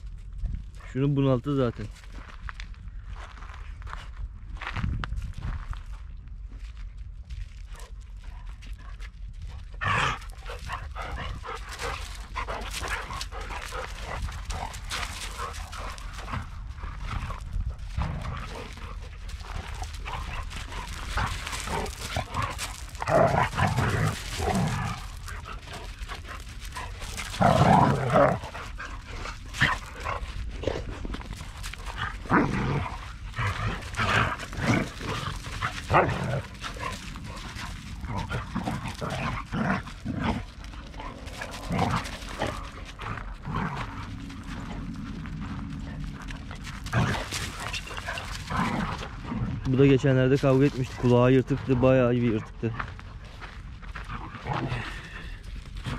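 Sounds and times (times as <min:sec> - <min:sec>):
dogs barking and yipping: 0:09.8 - 0:30.4, 0:31.2 - 0:49.6.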